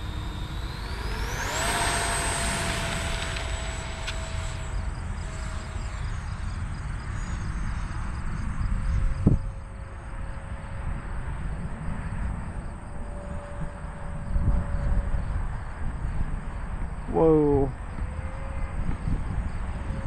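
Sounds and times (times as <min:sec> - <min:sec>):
low rushing noise: 0:00.0 - 0:06.9
model jet motor whine: 0:00.0 - 0:20.0.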